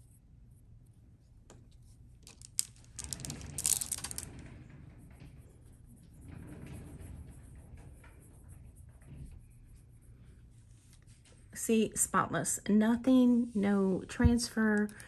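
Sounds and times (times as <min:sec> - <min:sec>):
plastic beads clicking together: 0:02.2 - 0:04.3.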